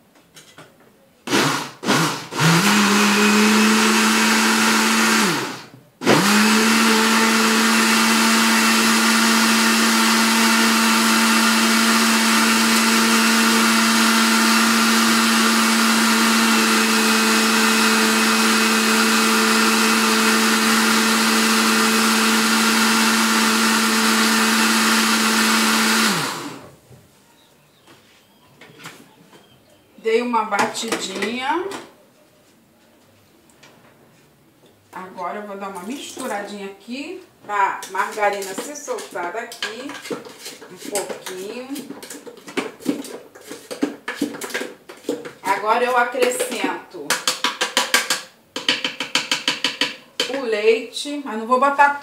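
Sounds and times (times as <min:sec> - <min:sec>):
countertop blender running: 0:01.3 - 0:26.8.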